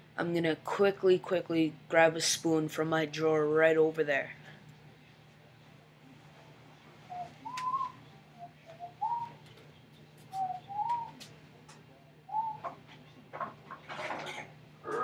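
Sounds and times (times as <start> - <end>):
whistling notes: 7.1 - 9.4, 10.4 - 11.2, 12.3 - 12.7.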